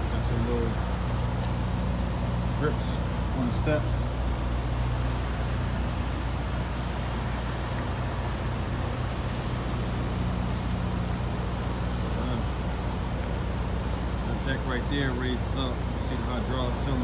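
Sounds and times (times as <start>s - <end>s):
truck engines idling: 0.0s - 17.0s.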